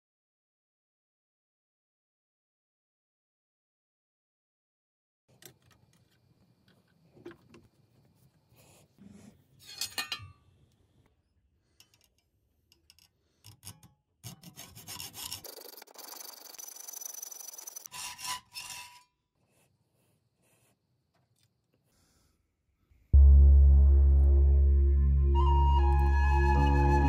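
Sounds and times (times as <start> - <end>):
saw rasping through metal: 14.2 - 15.6, 17.3 - 19.2.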